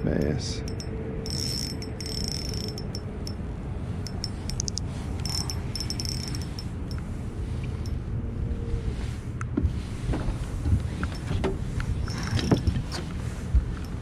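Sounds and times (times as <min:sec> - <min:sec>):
faint steady hum: 0:00.0 - 0:14.0
wind rumble on microphone: 0:00.0 - 0:14.0
rapid high-pitched clicking: 0:00.2 - 0:03.4, 0:04.1 - 0:06.7.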